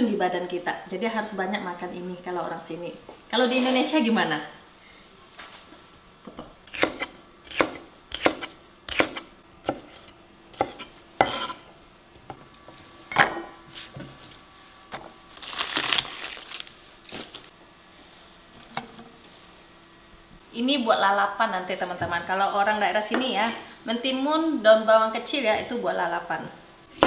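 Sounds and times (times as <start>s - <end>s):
knife chopping on wooden board: 6.7s - 11.6s.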